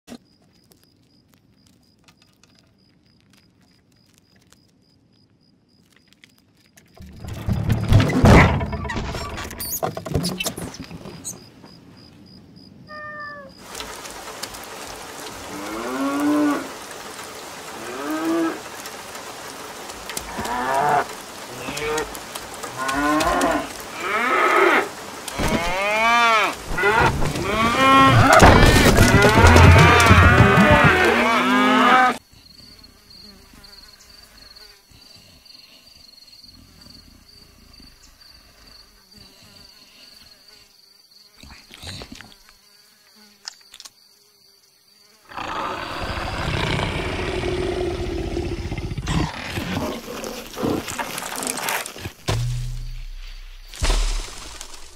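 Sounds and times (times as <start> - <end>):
faint insect drone: 0.1 - 9.0, 9.6 - 54.9
rain hiss: 13.4 - 29.2, 45.2 - 54.9
cattle mooing: 22.8 - 32.2.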